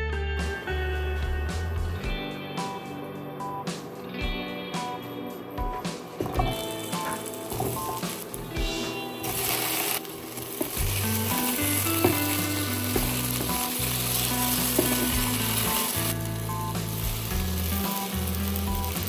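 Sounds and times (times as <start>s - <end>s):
background music: 0.0s - 19.0s
potatoes sizzling in oil: 6.4s - 19.0s.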